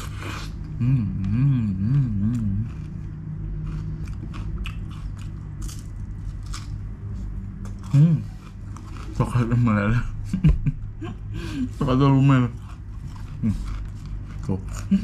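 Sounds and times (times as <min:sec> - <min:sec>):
humming through closed lips: 0:00.0 - 0:03.1
crunching wafer cone: 0:02.3 - 0:06.8, 0:12.1 - 0:15.0.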